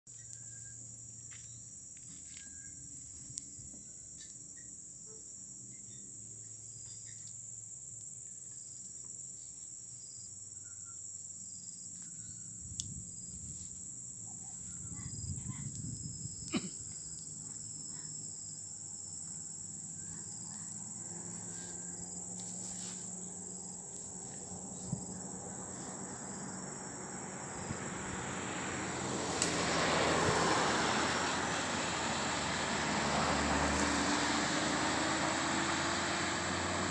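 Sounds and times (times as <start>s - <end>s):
insects droning: 0.1s - 36.9s
vehicle road noise: 11.8s - 36.9s.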